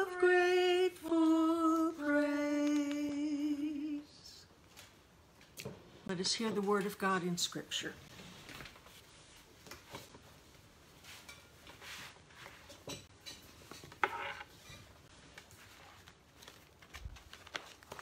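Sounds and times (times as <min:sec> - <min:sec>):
shuffling and clothing rustle: 0:08.1 - 0:12.9, 0:15.0 - 0:18.0.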